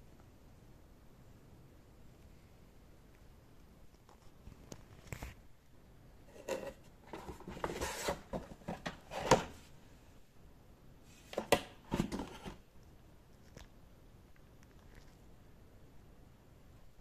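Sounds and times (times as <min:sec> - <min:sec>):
scrapes and rustles in cardboard box: 0:06.3 - 0:09.3.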